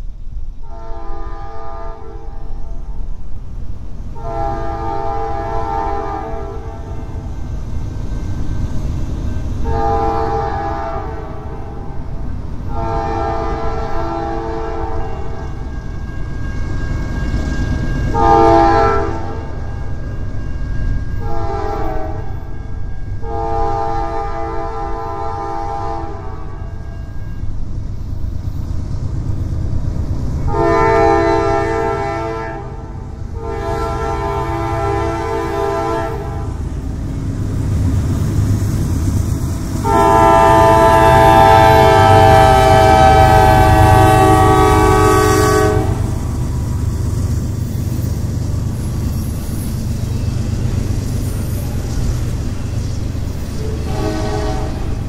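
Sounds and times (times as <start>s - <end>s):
diesel locomotives rumbling: 0.0s - 55.0s
locomotive air horn blasts: 0.6s - 2.8s, 4.2s - 7.3s, 9.6s - 12.0s, 12.7s - 27.5s, 30.5s - 36.8s, 39.5s - 46.5s, 53.6s - 55.0s.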